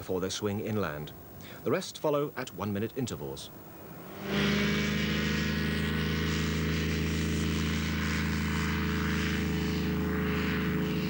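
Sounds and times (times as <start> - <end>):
microlight engine and propeller buzzing: 3.4 - 11.0.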